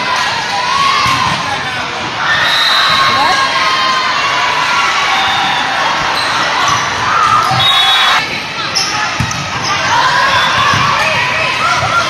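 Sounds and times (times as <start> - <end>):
voices in a gym: 0.0 - 12.0.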